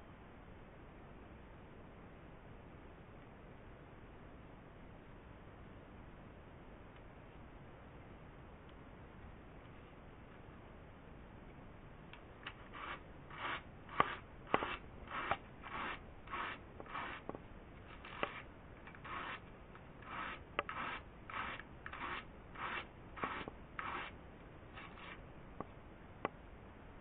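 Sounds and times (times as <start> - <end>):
hand cards rasping wool: 12.4 - 25.7.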